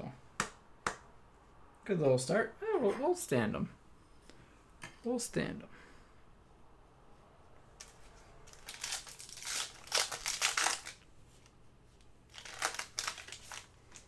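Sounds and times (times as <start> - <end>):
plastic packaging crinkling: 8.5 - 11.1, 12.3 - 14.0.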